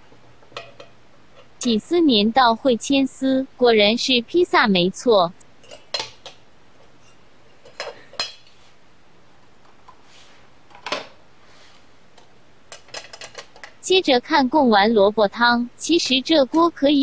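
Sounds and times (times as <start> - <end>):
cutlery clinking on steel bowl: 5.6 - 6.3.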